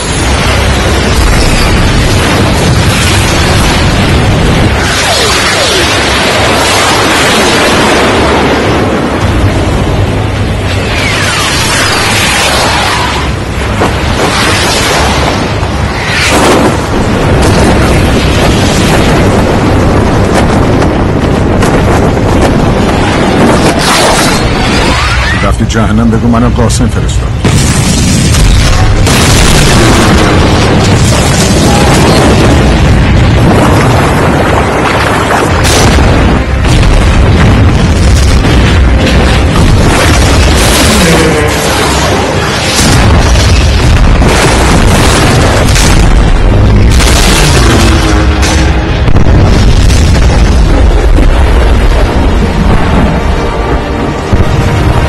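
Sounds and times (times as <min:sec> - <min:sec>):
explosion roar: 0:00.0 - 0:25.6, 0:27.3 - 0:55.0
film music: 0:00.0 - 0:55.0
sharp cracks: 0:27.4 - 0:51.4.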